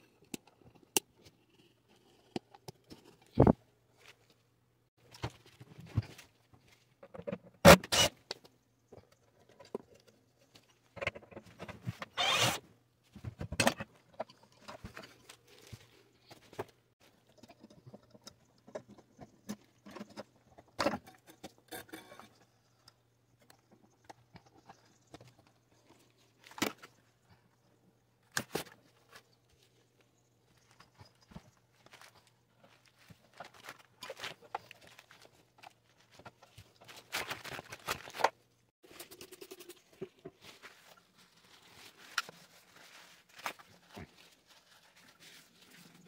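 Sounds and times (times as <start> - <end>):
rustling: 28.5 - 38.4, 39.8 - 46.0.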